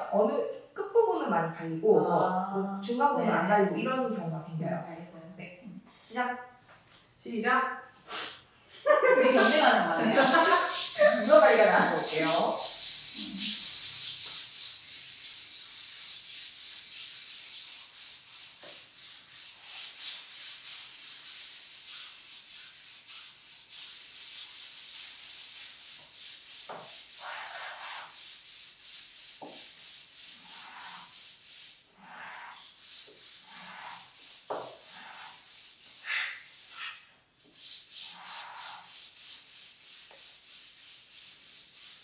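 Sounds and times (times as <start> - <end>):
hand sanding on sandpaper: 9.1 - 42.0.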